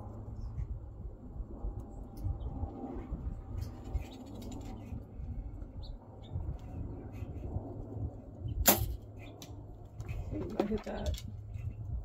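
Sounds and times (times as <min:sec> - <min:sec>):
wind buffeting microphone: 0:00.0 - 0:12.0
bow being shot: 0:08.6 - 0:09.0.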